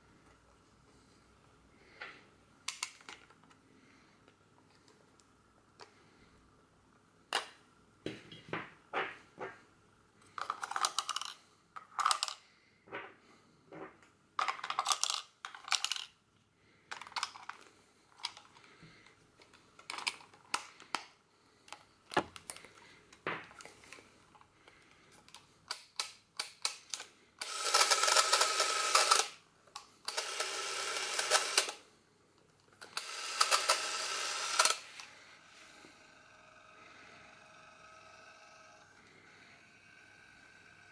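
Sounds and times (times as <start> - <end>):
camera motor whirring: 30.1 - 31.8, 33.0 - 40.9.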